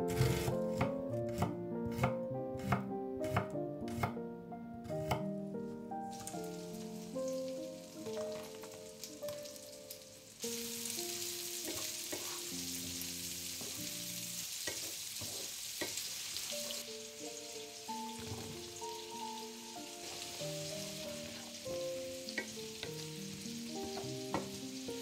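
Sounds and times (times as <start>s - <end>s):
gentle background melody: 0.0s - 14.9s, 16.4s - 25.0s
onions sizzling in pan: 6.1s - 25.0s
wooden spatula stirring: 11.6s - 12.5s.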